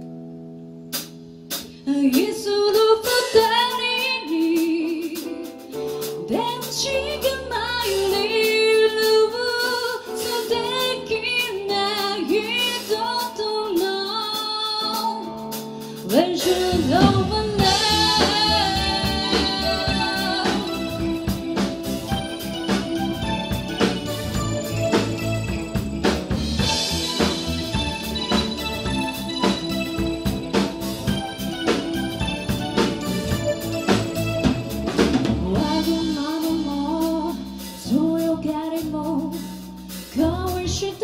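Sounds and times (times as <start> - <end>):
live band playing: 0.8 - 41.0
woman singing with vibrato: 1.9 - 5.5, 6.2 - 15.3, 16.0 - 22.8, 35.4 - 39.4, 40.2 - 41.0
sustained keyboard chords: 15.2 - 39.1.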